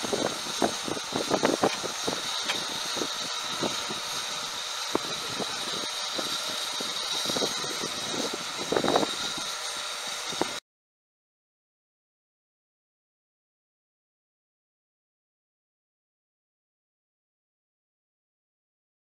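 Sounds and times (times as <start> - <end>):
steam locomotive hissing: 0.0 - 10.6.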